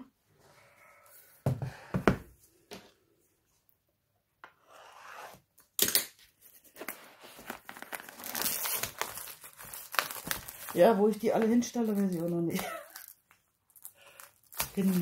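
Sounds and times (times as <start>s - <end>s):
plastic film rustling: 6.8s - 15.0s.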